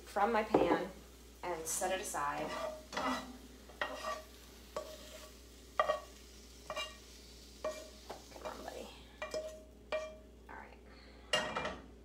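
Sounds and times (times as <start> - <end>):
oil sizzling: 0.0 - 10.5
utensil scraping frying pan: 1.7 - 10.2.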